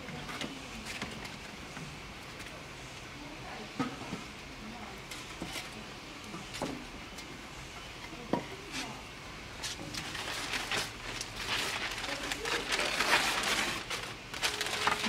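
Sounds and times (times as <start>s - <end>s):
newspaper rustling: 9.6s - 15.0s.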